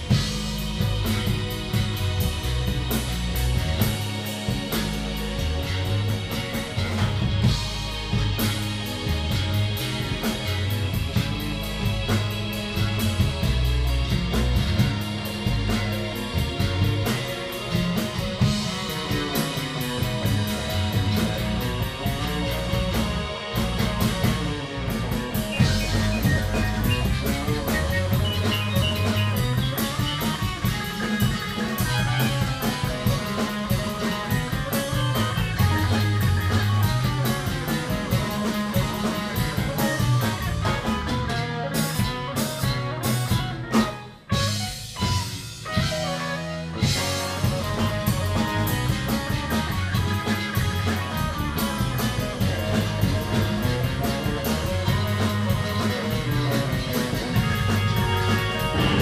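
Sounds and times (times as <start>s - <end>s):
rock band playing live: 0.0s - 59.0s.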